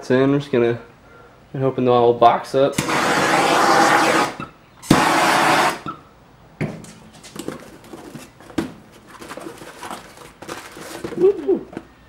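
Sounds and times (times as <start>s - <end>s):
cardboard flaps crackling: 6.9s - 11.9s.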